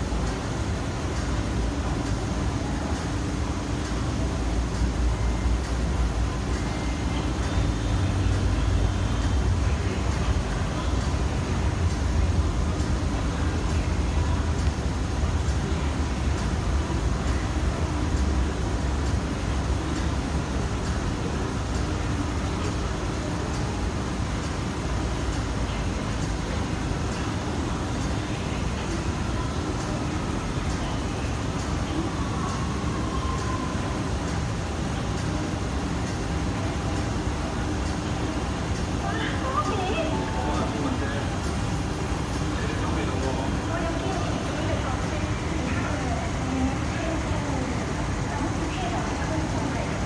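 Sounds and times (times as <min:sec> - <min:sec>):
metro platform rumble and hiss: 0:00.0 - 0:50.0.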